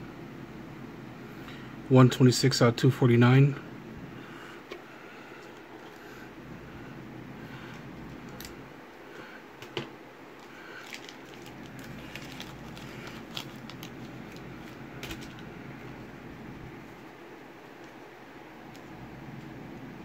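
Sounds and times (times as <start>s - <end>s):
steady low hum: 0.0s - 20.0s
trading cards clicking and rustling: 9.6s - 16.0s.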